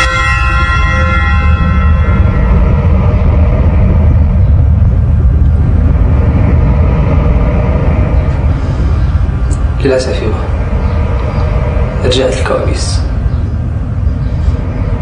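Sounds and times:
scary music cue: 0.0 - 9.8
low dark drone: 0.0 - 15.0.

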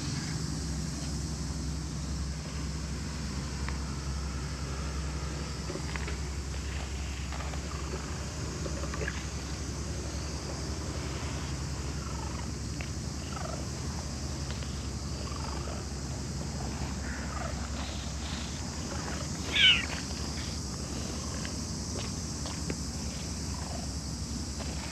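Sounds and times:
cat meowing: 19.5 - 19.9.

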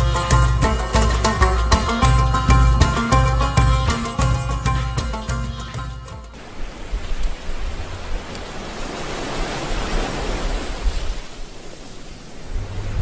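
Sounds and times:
ocean waves washing: 0.0 - 13.0
low rumble: 12.4 - 13.0.

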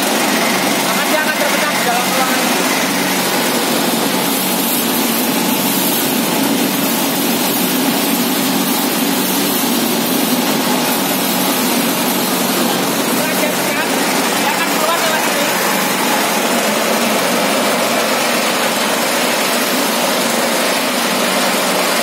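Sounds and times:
machine drone with low hum: 0.0 - 22.0.

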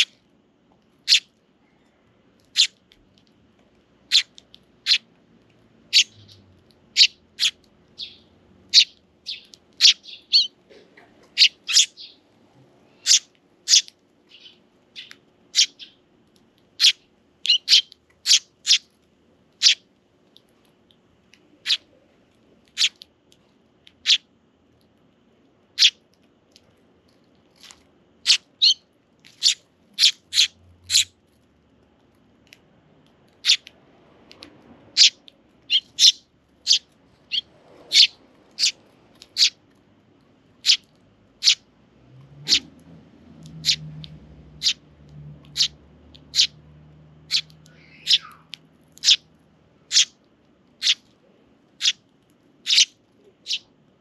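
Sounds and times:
sparrows chirping: 1.0 - 1.3, 2.4 - 2.8, 4.1 - 5.1, 5.9 - 12.3, 13.0 - 16.1, 16.8 - 18.9, 19.6 - 19.8, 21.6 - 21.9, 22.7 - 23.0, 23.9 - 24.2, 25.7 - 26.0, 28.2 - 31.2, 33.3 - 33.7, 34.9 - 39.6, 40.6 - 40.8, 41.4 - 41.7, 42.4 - 42.7, 43.4 - 44.8, 45.4 - 46.6, 47.2 - 49.2, 49.9 - 50.2, 50.8 - 51.0, 51.8 - 52.0, 52.6 - 53.7.

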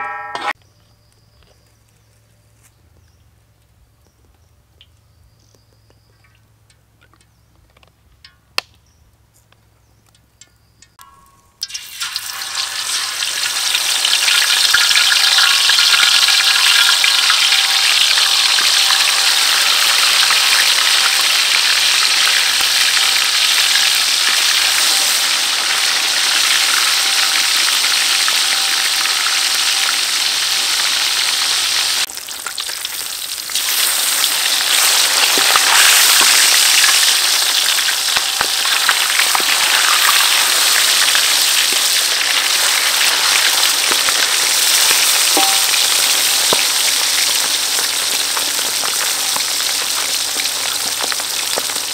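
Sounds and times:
fish sizzling in hot oil: 11.1 - 51.9.

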